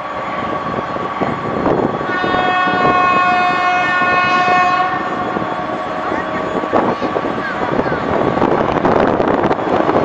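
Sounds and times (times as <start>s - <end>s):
locomotive engine rumble: 0.0s - 10.0s
locomotive horn: 2.0s - 5.7s.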